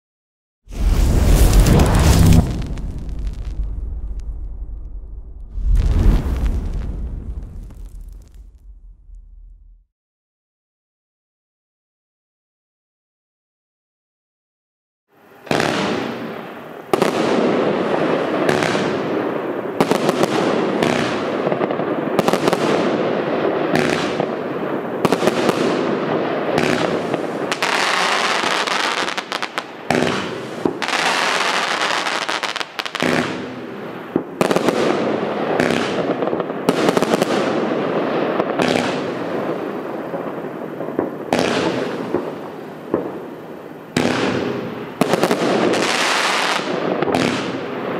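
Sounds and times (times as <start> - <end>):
firework hiss and crackle: 0.7 - 9.8, 15.2 - 47.9
firework launch reports: 0.7 - 9.8.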